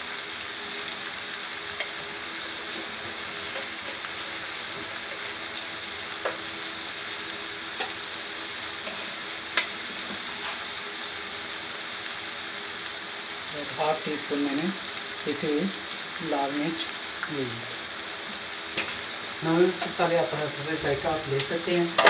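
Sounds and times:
vegetables sizzling in a pan: 0.0s - 22.0s.

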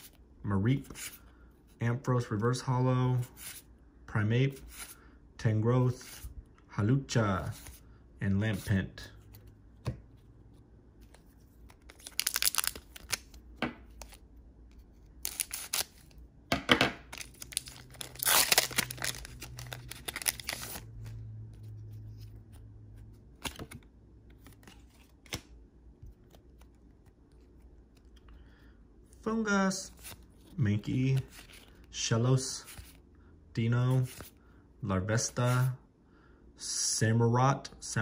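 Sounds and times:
foil wrapper tearing and crinkling: 11.9s - 13.2s, 17.2s - 20.8s
cards clicking: 23.4s - 25.5s.

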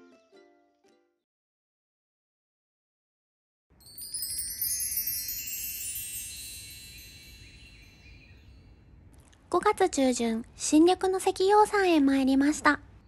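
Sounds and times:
metal chimes ringing: 3.8s - 9.0s.

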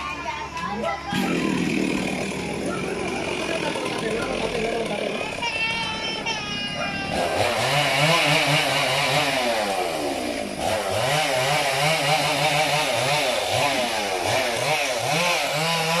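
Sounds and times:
chainsaw cutting wood: 1.1s - 5.5s, 7.1s - 16.0s.

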